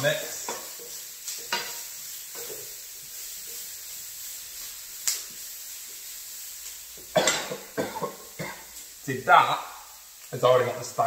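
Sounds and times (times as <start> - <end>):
vegetables sizzling in a wok: 0.0 - 11.0.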